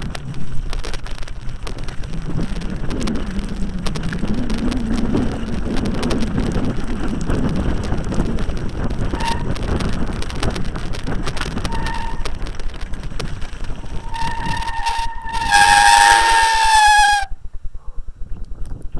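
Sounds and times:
bike rattling down rough track: 0.0s - 18.9s
wind on microphone: 0.0s - 18.9s
bike brakes squealing: 9.1s - 9.5s, 11.6s - 12.4s, 13.9s - 17.4s.

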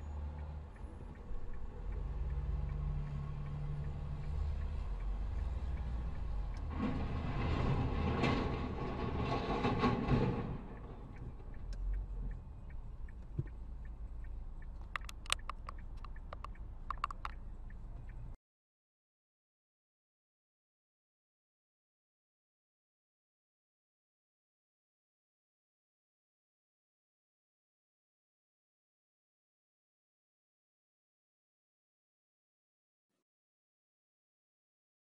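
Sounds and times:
heavy truck rumbling: 0.0s - 18.0s
sharp clicks: 14.2s - 17.5s.

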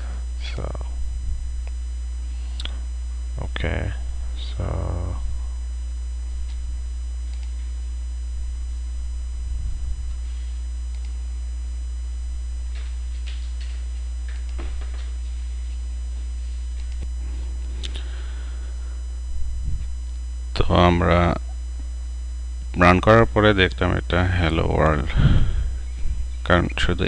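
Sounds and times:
faint high whine: 0.0s - 27.0s
low electrical hum: 0.0s - 27.0s
computer mouse clicks: 7.3s - 7.6s.

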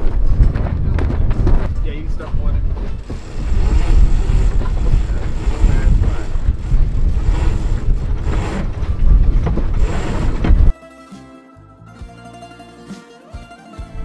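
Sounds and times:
strong wind buffeting microphone: 0.0s - 10.7s.

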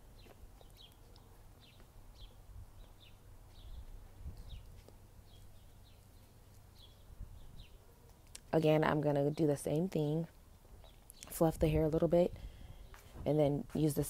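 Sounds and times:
small bird chirping: 0.1s - 8.4s.

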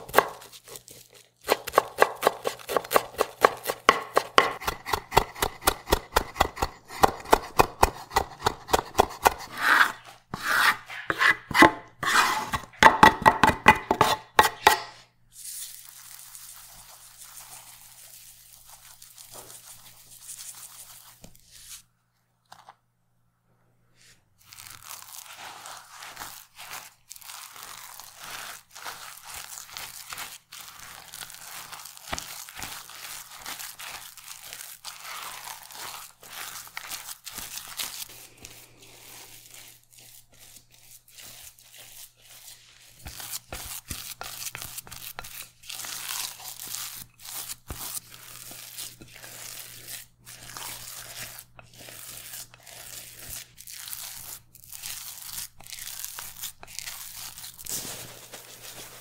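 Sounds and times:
spatula squishing and scraping mixture: 0.0s - 21.9s, 24.0s - 59.0s.

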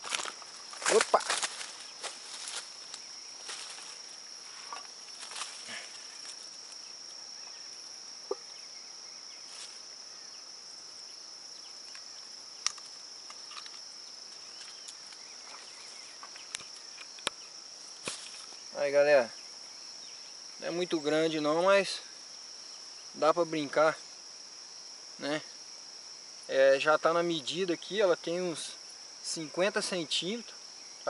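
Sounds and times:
faint rustling: 0.0s - 6.9s
insect chorus: 0.0s - 31.0s.

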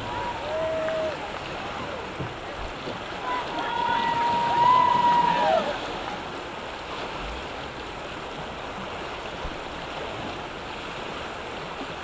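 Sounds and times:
river rapids rushing: 0.0s - 12.0s.

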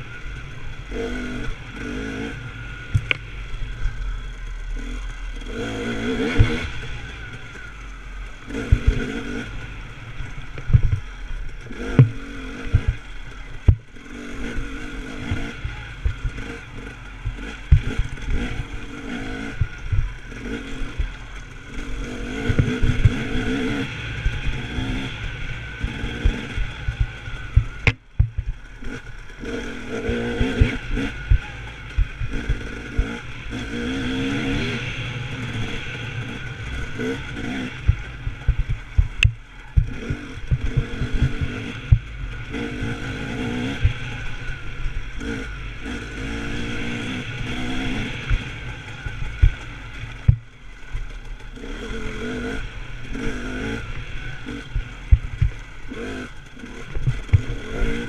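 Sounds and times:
motorcycle engine revving: 0.0s - 58.0s
sharp knocks and thumps: 11.9s - 12.9s, 27.6s - 28.5s.

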